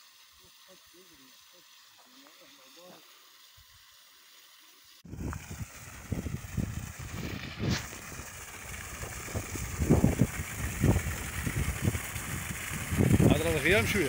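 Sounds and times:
water gushing from hose: 0:00.0 - 0:14.0
wind buffeting microphone: 0:05.1 - 0:14.0.

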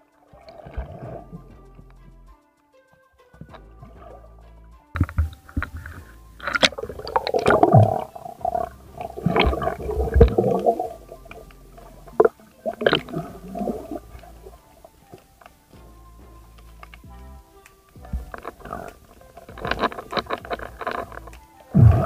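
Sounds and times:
muffled churning water: 0:00.3 - 0:02.0, 0:05.0 - 0:22.0
gurgling bubbles: 0:05.2 - 0:14.7, 0:21.7 - 0:22.0.

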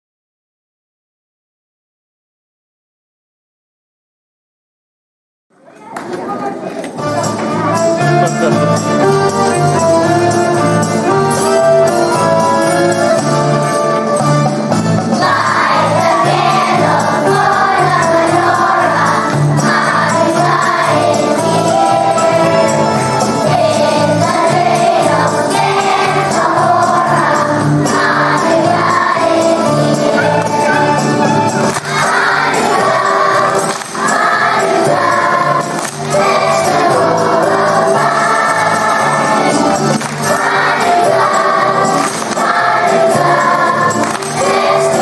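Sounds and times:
children's choir singing: 0:08.6 - 0:14.1, 0:14.7 - 0:45.0.

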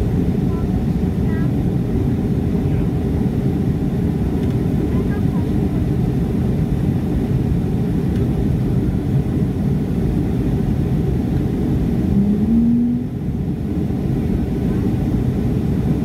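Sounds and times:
airplane engines rumbling: 0:00.0 - 0:16.0
rushing air: 0:11.5 - 0:14.0
hum rising in pitch: 0:11.7 - 0:13.4.

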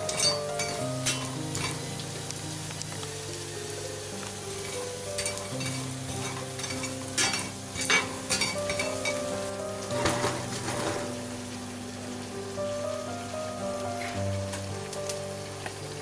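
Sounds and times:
light sizzle: 0:00.0 - 0:16.0
soft background music: 0:00.0 - 0:16.0
spatula scraping a frying pan: 0:04.6 - 0:09.2, 0:09.9 - 0:11.2.

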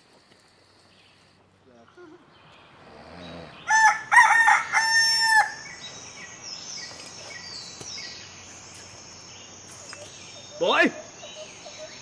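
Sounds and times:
rooster crowing: 0:03.7 - 0:05.7
high-pitched insect trill: 0:03.8 - 0:12.0
faint bird chirps: 0:05.7 - 0:12.0.

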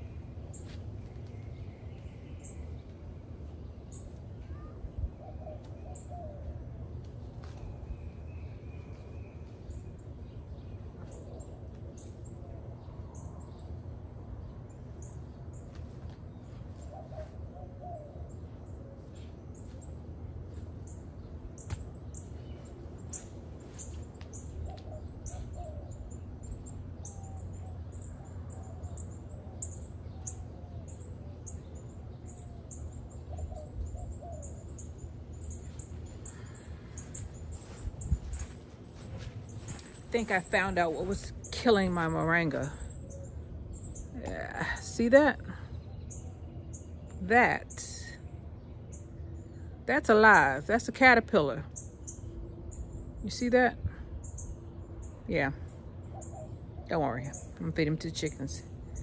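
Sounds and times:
steady low hum: 0:00.0 - 0:59.0
high bird chirps: 0:16.5 - 0:45.0.

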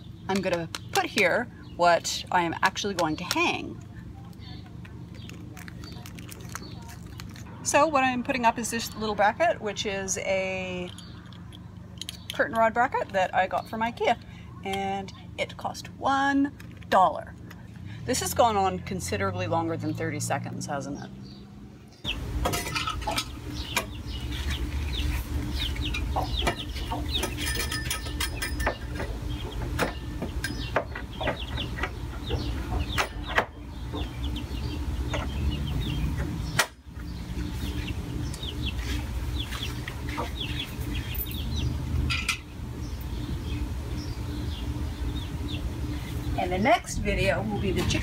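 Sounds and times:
steady low hum: 0:00.0 - 0:48.0
chickens clucking and peeping: 0:22.0 - 0:48.0.

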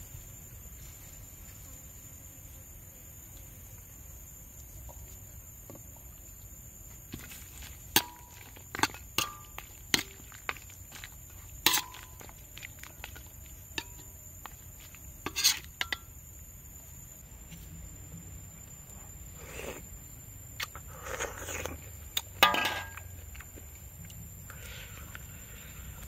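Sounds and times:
metal ladle clinking on wok: 0:22.4 - 0:23.0.

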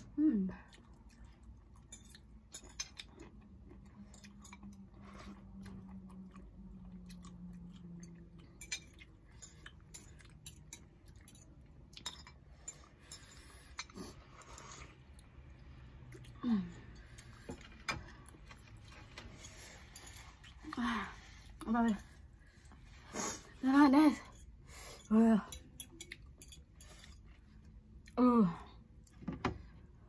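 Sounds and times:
chewing noodles: 0:00.6 - 0:17.5.

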